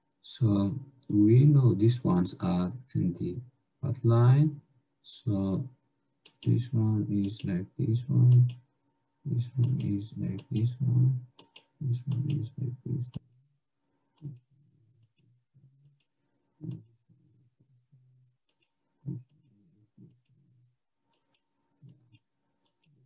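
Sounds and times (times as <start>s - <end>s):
person speaking: 0.2s - 5.7s, 6.3s - 8.6s, 9.3s - 13.2s, 16.6s - 16.9s
computer mouse clicks: 6.2s - 6.6s, 8.3s - 8.6s, 9.6s - 10.7s, 11.4s - 12.5s, 18.4s - 20.4s, 21.1s - 23.0s.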